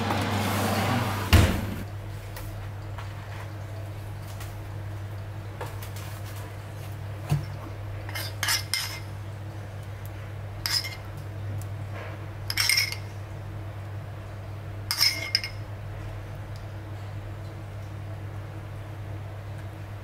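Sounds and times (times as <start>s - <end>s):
metal spoon scraping a bowl: 8.1s - 9.1s, 10.6s - 11.0s.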